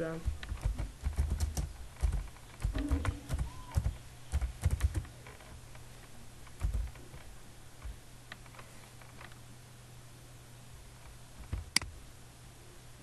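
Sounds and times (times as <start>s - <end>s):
low steady hum: 0.0s - 13.0s
keyboard typing clicks: 0.2s - 5.1s, 6.6s - 7.0s.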